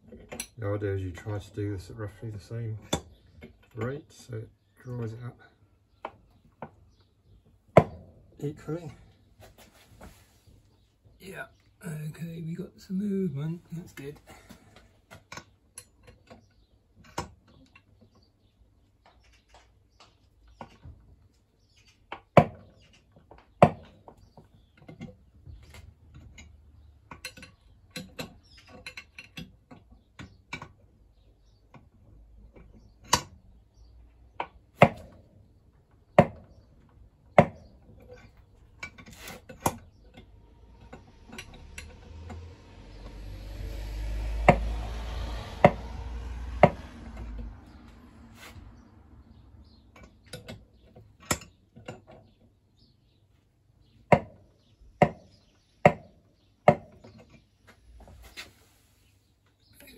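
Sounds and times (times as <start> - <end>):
low rumbling noise: 40.0 - 49.8.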